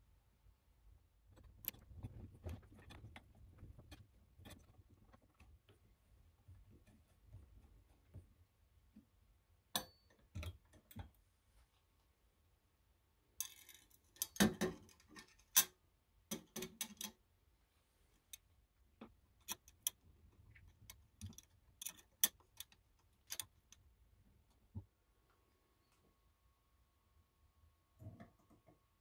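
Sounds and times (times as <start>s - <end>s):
metal parts clicking on metal: 13.4s - 17.2s, 19.4s - 20.0s, 20.7s - 23.8s.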